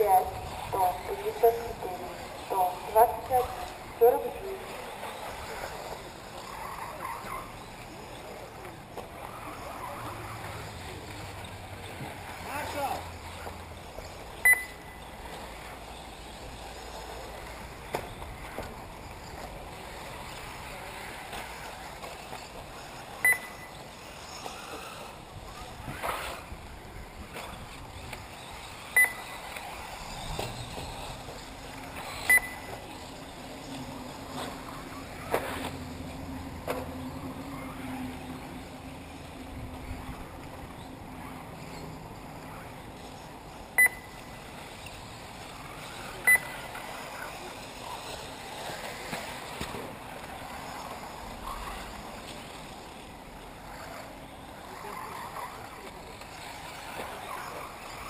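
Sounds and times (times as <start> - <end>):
outdoor noise: 0.0 - 58.0
short sharp electronic beeps: 14.4 - 15.0, 23.2 - 23.8, 28.9 - 29.3, 32.2 - 32.7, 43.8 - 44.2, 46.2 - 46.6.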